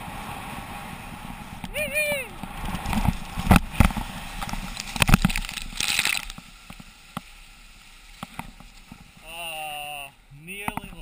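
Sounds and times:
wind on camera: 0:00.0 - 0:07.3
skis scraping over hard snow: 0:02.4 - 0:10.0
person's voice: 0:09.2 - 0:11.0.

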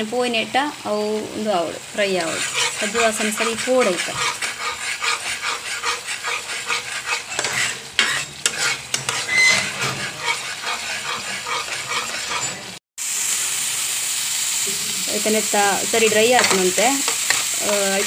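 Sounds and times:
masala sizzling: 0:00.0 - 0:18.0
spatula scraping a pan: 0:02.0 - 0:12.8, 0:15.6 - 0:18.0.

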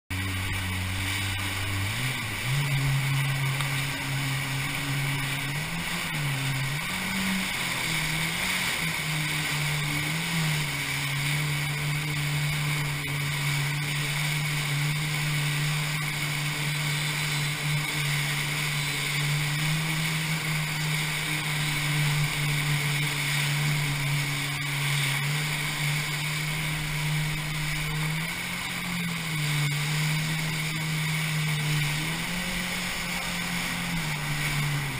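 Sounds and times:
jet ski engine under throttle: 0:00.0 - 0:34.9
water rushing: 0:00.1 - 0:34.9.

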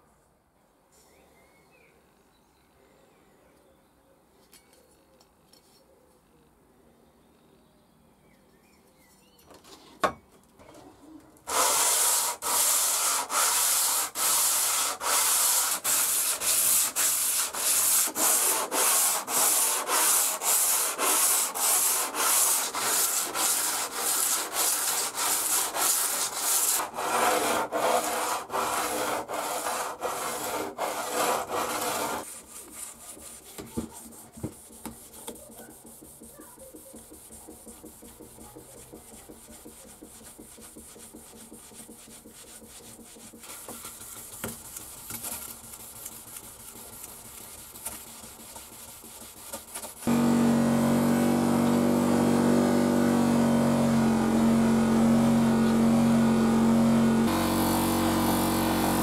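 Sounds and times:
faint scrubbing: 0:11.0 - 0:50.2
metal rubbed on sandpaper: 0:11.5 - 0:50.1.

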